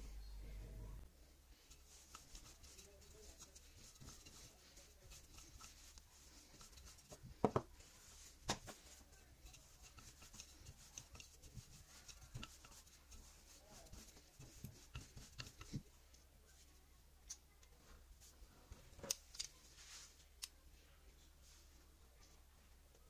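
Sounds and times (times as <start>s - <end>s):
rolling pin rolling dough: 1.5s - 16.0s.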